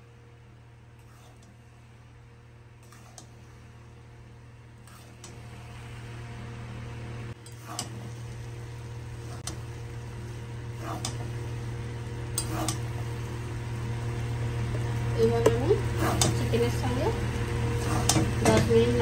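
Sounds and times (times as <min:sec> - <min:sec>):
steady low hum: 0:00.0 - 0:19.0
metal spatula scraping a pan: 0:01.0 - 0:01.6, 0:02.8 - 0:03.4, 0:04.8 - 0:05.3.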